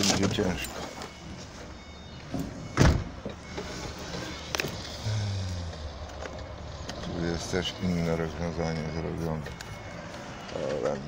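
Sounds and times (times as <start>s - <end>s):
car door slamming shut: 2.3s - 3.2s.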